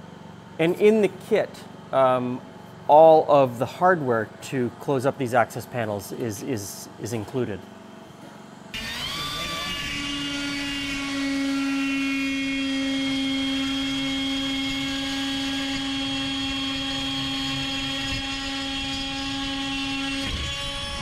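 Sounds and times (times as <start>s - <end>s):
rotary power tool cutting metal: 8.7s - 21.0s.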